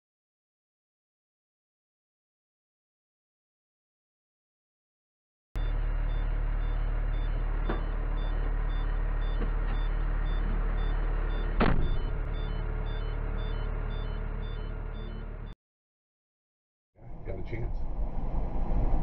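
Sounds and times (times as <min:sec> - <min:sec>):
truck engine running: 0:05.6 - 0:15.6
short high beeps: 0:08.2 - 0:15.6
loud sharp knock: 0:11.6 - 0:12.1.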